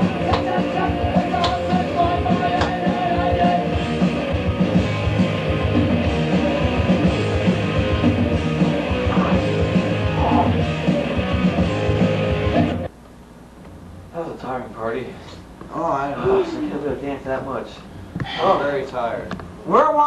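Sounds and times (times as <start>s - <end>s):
rock music with steady beat: 0.0s - 12.9s.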